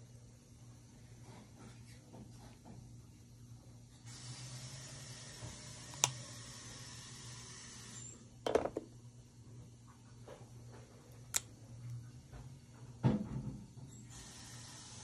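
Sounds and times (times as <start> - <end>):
low room hum: 0.0 - 15.0
plastic bottle knock: 8.5 - 8.9.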